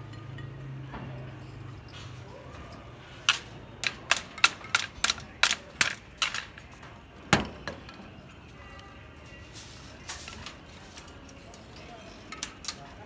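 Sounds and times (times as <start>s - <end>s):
tie wire clicking against rebar: 3.2s - 6.6s, 12.3s - 13.0s.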